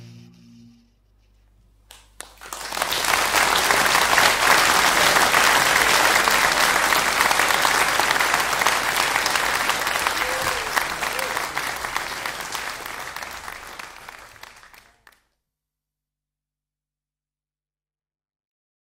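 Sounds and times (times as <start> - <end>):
audience applause: 1.9 - 15.2.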